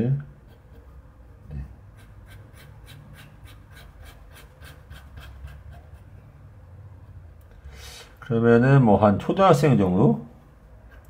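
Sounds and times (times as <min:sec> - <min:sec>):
pen scratching on paper: 0:01.9 - 0:06.1.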